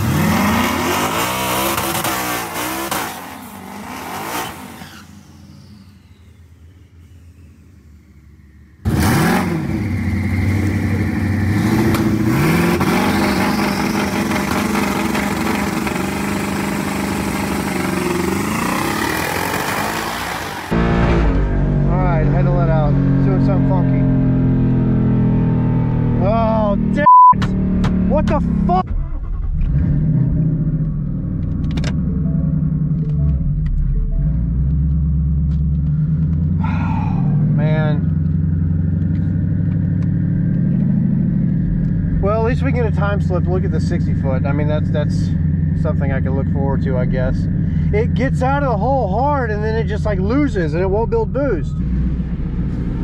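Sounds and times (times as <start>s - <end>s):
loud car engine revving: 0.0s - 6.1s, 8.8s - 53.0s.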